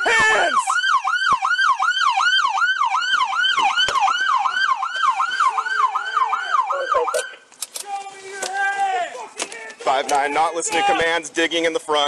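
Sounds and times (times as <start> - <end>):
police siren yelping: 0.0 - 7.5.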